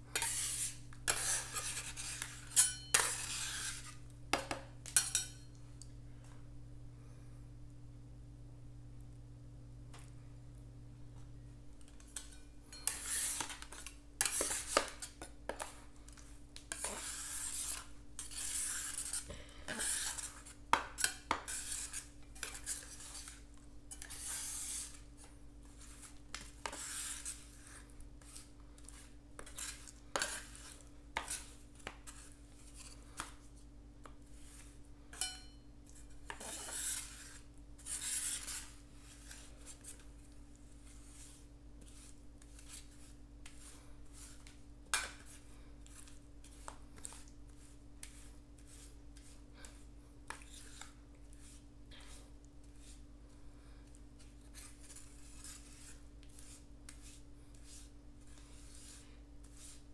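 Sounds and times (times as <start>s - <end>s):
metal spatulas scraping a pan: 0.1s - 4.1s, 4.8s - 5.5s, 12.0s - 15.7s, 16.7s - 25.1s, 25.8s - 31.5s, 34.4s - 40.0s, 54.6s - 57.9s.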